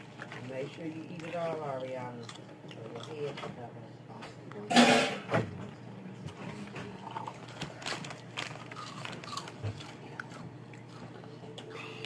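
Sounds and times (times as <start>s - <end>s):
chewing crunchy snacks: 0.0s - 3.6s, 7.0s - 12.0s.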